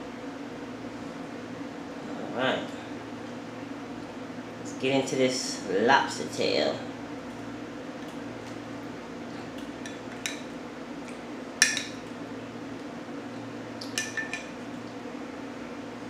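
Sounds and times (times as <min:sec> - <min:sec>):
low room hum: 0:00.0 - 0:16.0
spoon clinking against glass dish: 0:13.9 - 0:14.5.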